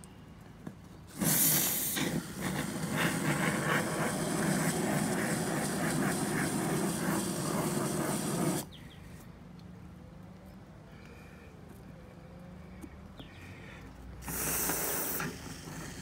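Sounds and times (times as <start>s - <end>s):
aerosol foam spraying hiss: 1.1s - 8.7s, 14.2s - 16.0s.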